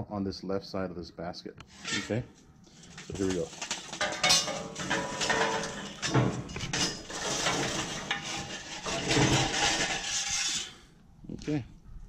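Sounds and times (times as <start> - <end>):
metal scraping on metal: 1.7 - 10.9
charcoal clattering on metal mesh: 2.8 - 10.8.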